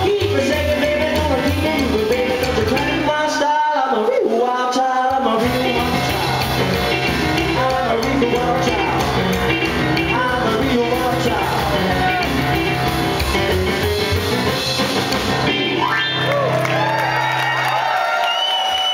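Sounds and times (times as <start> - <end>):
rock and roll band playing: 0.0 - 3.8, 4.9 - 17.8
pounding piano: 5.4 - 16.3
audience shouting: 11.2 - 13.6, 15.4 - 18.9.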